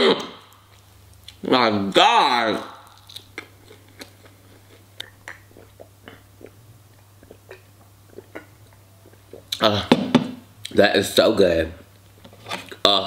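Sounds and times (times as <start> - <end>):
steady low hum: 0.0 - 13.0
wet chewing smacks: 2.8 - 9.6.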